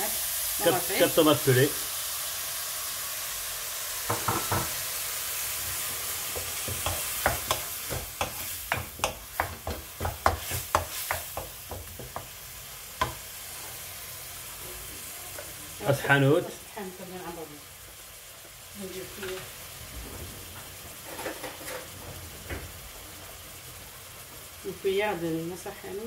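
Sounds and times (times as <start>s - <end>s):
onions sizzling in a pan: 0.0s - 26.0s.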